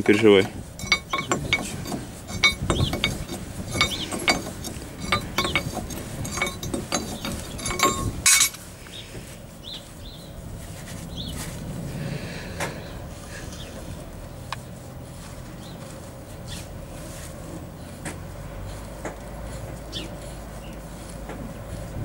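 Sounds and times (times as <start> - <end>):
spanner clanking on steel: 0.0 - 8.6.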